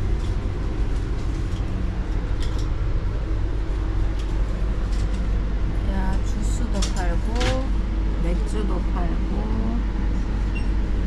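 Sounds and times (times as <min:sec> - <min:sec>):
train rumble inside carriage: 0:00.0 - 0:11.0.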